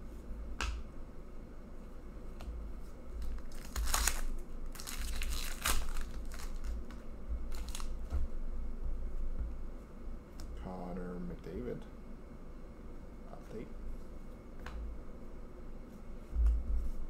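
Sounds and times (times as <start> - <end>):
foil wrapper crinkling: 3.2 - 8.0.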